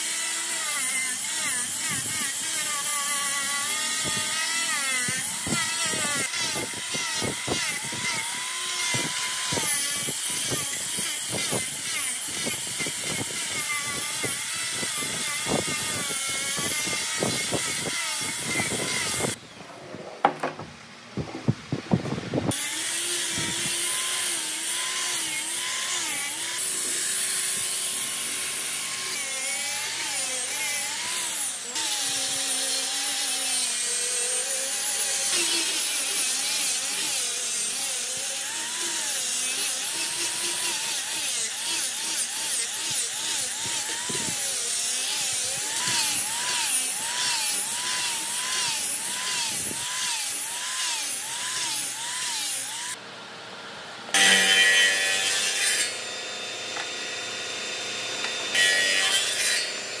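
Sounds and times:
angle grinder sanding wood: 0:00.0 - 0:19.4, 0:22.5 - 0:53.0, 0:54.1 - 1:00.0
sharp knocks: 0:20.1 - 0:22.2.

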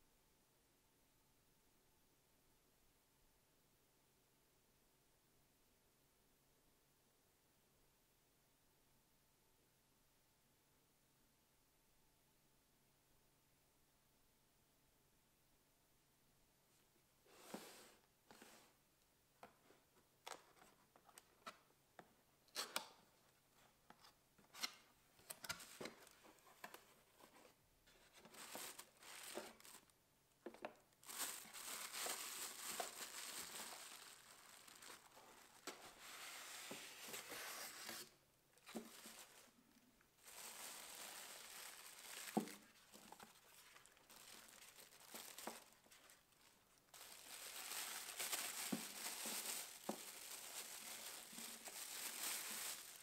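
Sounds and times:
plastic bag crinkling: 0:28.3 - 0:29.9, 0:30.7 - 0:36.5, 0:38.6 - 0:39.6, 0:40.2 - 0:53.0.

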